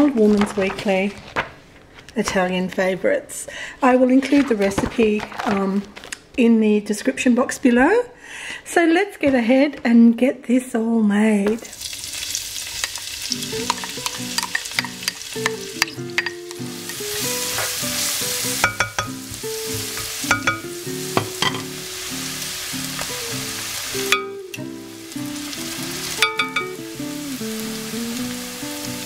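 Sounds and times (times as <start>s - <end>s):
onions sizzling in oil: 11.7s - 29.0s
soft melody: 13.3s - 29.0s.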